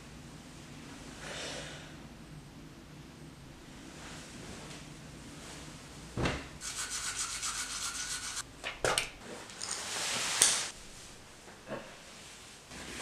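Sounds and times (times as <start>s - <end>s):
scrubbing strokes: 6.6s - 8.4s.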